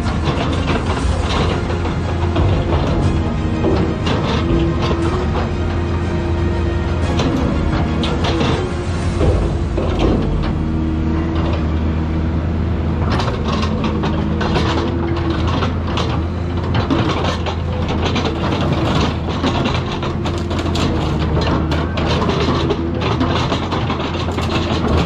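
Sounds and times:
excavator diesel engine: 0.0 - 25.0
metal crunching and clanking: 0.0 - 25.0.

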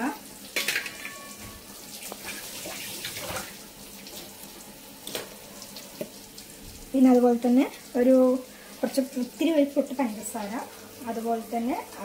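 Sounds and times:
soft watery hiss: 5.4 - 12.0.

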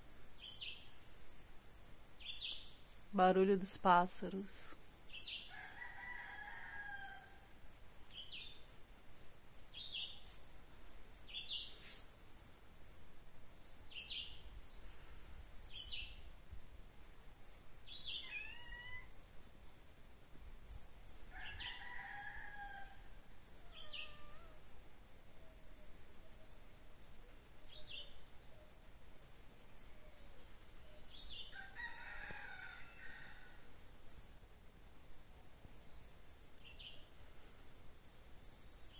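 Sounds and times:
falling bird calls: 21.4 - 24.8.

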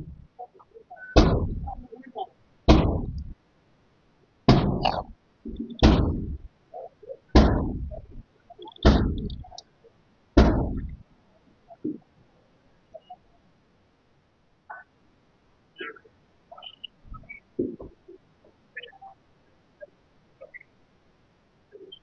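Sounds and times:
echo off buildings: 0.0 - 3.4, 4.5 - 13.2
heavy blows on a door: 1.2 - 1.8, 2.7 - 3.4, 4.5 - 6.5, 7.4 - 8.2, 8.8 - 9.5, 10.4 - 11.0.

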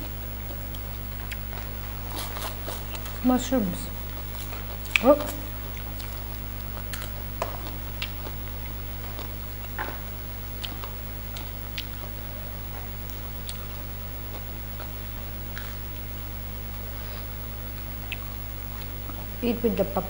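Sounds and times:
steady low hum: 0.0 - 20.0
chewing clicks and smacks: 0.4 - 3.2, 4.2 - 15.8, 17.7 - 19.3
fingers picking at food: 0.4 - 3.4, 4.2 - 9.8, 10.5 - 12.2.

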